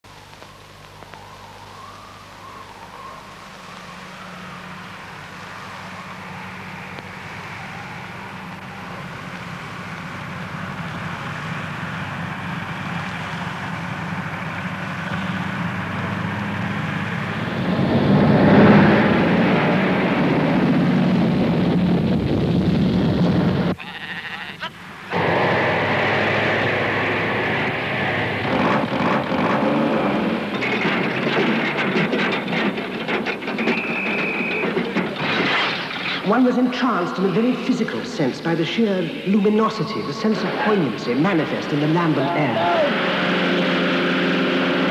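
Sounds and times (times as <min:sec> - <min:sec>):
heavy lorry engine running: 0:02.5 - 0:23.8, 0:24.8 - 0:44.9
clattering site noise: 0:24.8 - 0:44.9.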